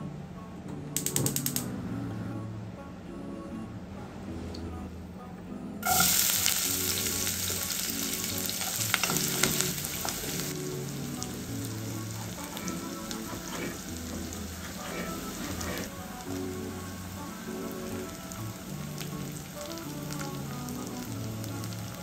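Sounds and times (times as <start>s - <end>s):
sharp clicks: 1.0s - 1.7s
onions sizzling in hot oil: 5.8s - 22.0s.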